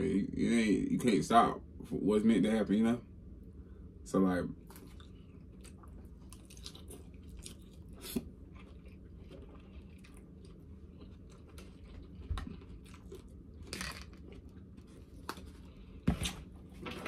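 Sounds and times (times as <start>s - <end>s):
low room hum: 0.0s - 17.0s
chewing with wet crunches: 4.6s - 16.0s.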